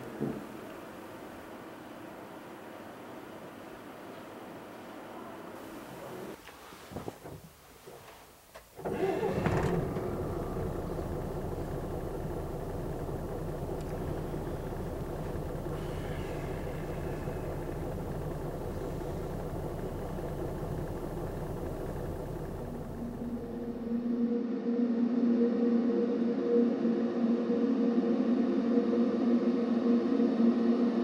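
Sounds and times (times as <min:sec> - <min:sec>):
bus engine humming: 0:08.8 - 0:24.2.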